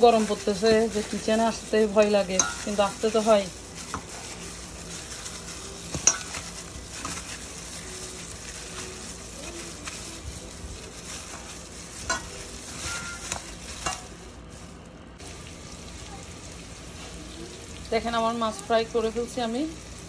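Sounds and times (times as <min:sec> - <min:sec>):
wet stirring of fish: 0:00.0 - 0:15.3.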